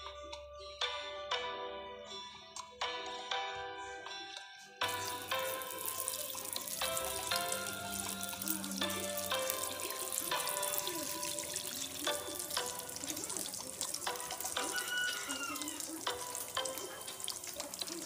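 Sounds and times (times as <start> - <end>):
background music: 0.0 - 18.0
meat sizzling in hot oil: 4.9 - 18.0.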